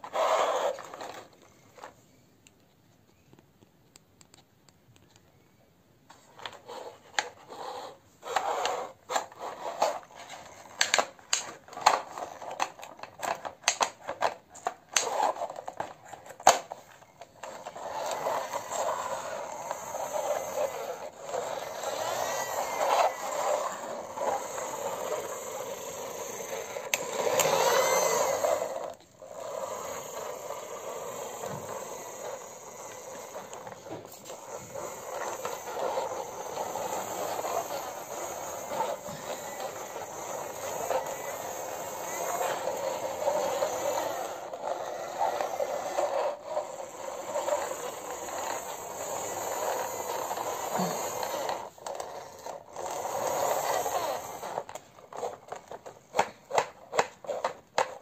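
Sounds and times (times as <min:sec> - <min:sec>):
toy truck rolling and scraping: 0:00.0 - 0:02.1, 0:06.1 - 0:58.0
plastic toy clicks and knocks: 0:08.4 - 0:19.2.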